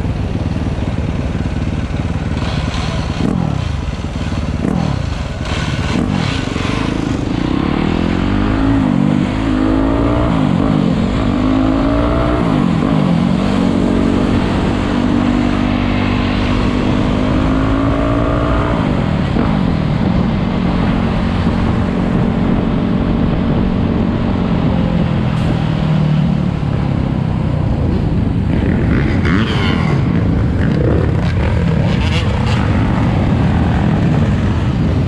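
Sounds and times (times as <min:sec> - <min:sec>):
motorcycle engine running: 0:00.0 - 0:25.2
wind rumbling on microphone: 0:02.6 - 0:35.0.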